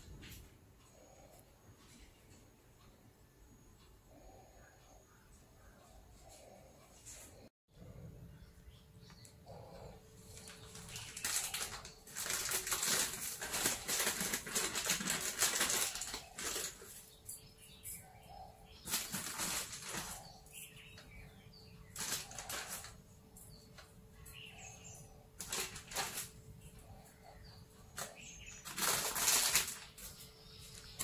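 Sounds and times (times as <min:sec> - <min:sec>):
plastic packet crinkling: 0:10.4 - 0:17.0, 0:18.8 - 0:20.3, 0:22.0 - 0:23.0, 0:25.4 - 0:26.4, 0:28.0 - 0:30.2.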